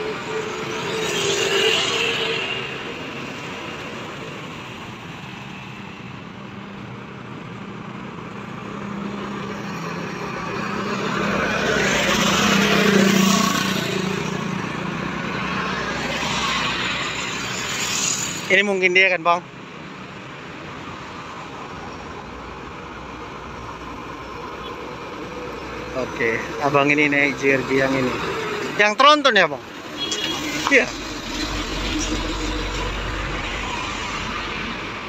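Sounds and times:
car passing: 0:08.9 - 0:18.5, 0:24.9 - 0:35.0
motorcycle passing: 0:10.8 - 0:14.6
heavy vehicle passing: 0:25.2 - 0:35.0.

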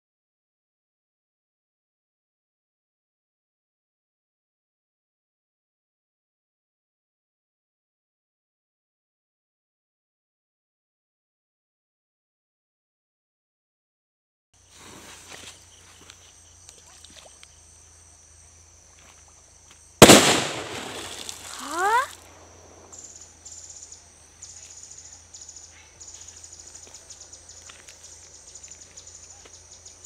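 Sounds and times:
water splashing down: 0:20.0 - 0:22.2
firecracker bang: 0:20.0 - 0:22.9.

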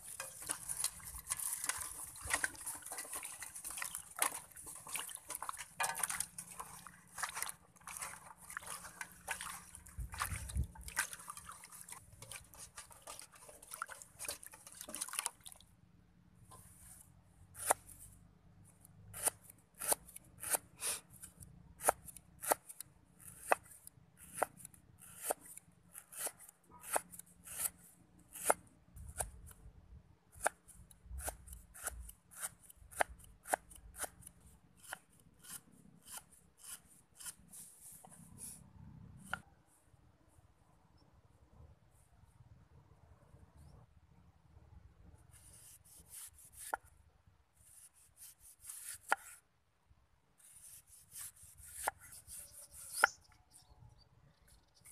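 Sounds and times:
beans swishing through water: 0:00.0 - 0:15.7.

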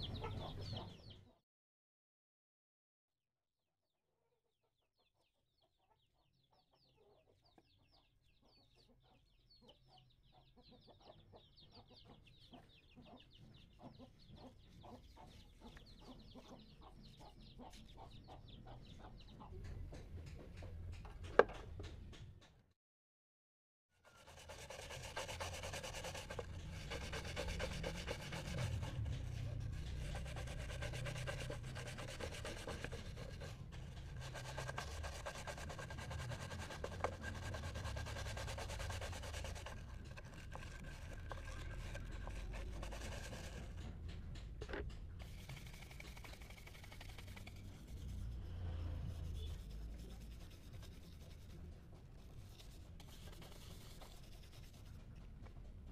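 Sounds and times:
brush scrubbing in soapy water: 0:24.2 - 0:43.7, 0:49.0 - 0:51.6, 0:52.2 - 0:55.0.

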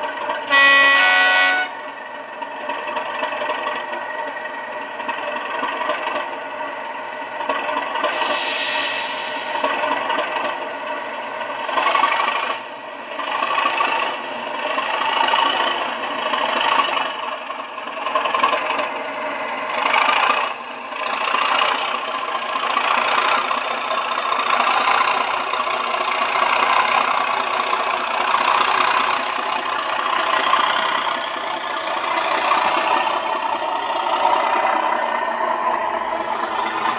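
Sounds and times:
diesel engine sound from small speaker: 0:00.0 - 0:09.9.

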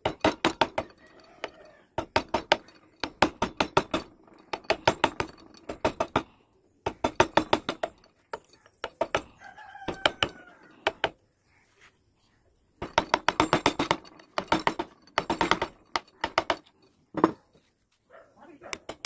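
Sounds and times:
mallet knocking a chisel: 0:00.0 - 0:06.2
rooster crowing: 0:00.9 - 0:01.9, 0:09.4 - 0:11.0.

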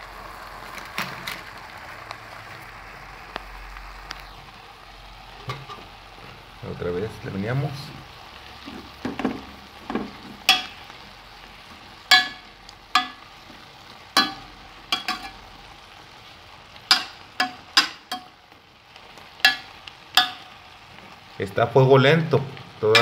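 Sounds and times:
spatula knocking against pot: 0:12.1 - 0:12.4, 0:13.0 - 0:13.2, 0:19.4 - 0:20.5.

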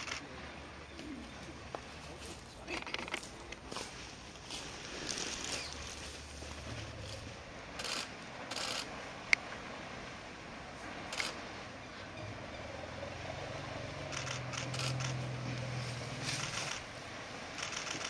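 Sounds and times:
low steady hum: 0:09.0 - 0:17.5.

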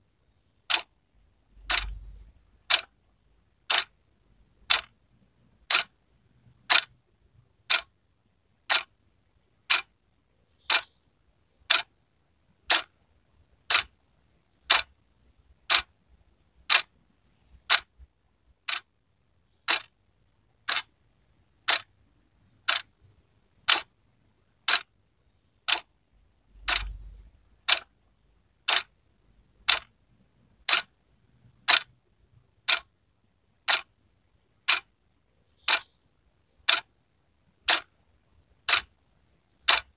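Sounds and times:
wall clock ticking: 0:00.6 - 0:00.9, 0:01.5 - 0:03.0, 0:03.6 - 0:04.0, 0:04.6 - 0:07.0, 0:07.6 - 0:08.0, 0:08.6 - 0:09.0, 0:09.6 - 0:10.0, 0:10.6 - 0:11.0, 0:11.6 - 0:11.9, 0:12.6 - 0:13.0, 0:13.6 - 0:14.0, 0:14.6 - 0:16.0, 0:16.6 - 0:19.0, 0:19.6 - 0:20.9, 0:21.6 - 0:24.0, 0:24.6 - 0:25.0, 0:25.6 - 0:25.9, 0:26.5 - 0:28.0, 0:28.6 - 0:29.0, 0:29.6 - 0:30.0, 0:30.6 - 0:32.0, 0:32.6 - 0:33.0, 0:33.6 - 0:34.0, 0:34.6 - 0:35.0, 0:35.6 - 0:36.0, 0:36.6 - 0:37.0, 0:37.6 - 0:38.0, 0:38.6 - 0:39.9.

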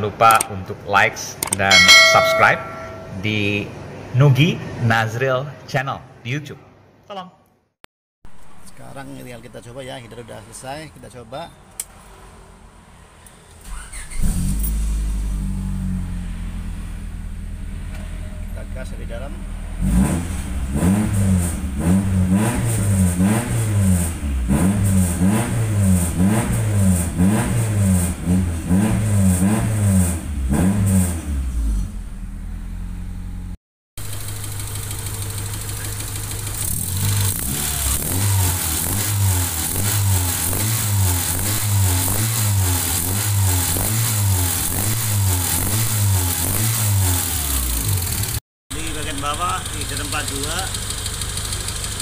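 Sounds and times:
car engine revving: 0:13.7 - 0:33.5, 0:34.1 - 0:52.0.

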